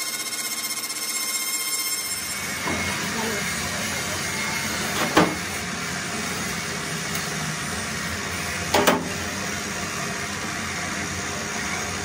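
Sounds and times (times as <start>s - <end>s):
lathe machine hum: 1.9s - 12.0s.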